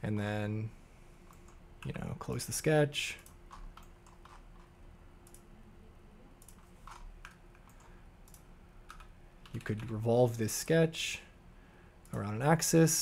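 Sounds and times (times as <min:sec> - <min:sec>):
faint steady hum: 0:00.0 - 0:13.0
computer mouse clicks: 0:03.2 - 0:05.4, 0:06.4 - 0:10.0.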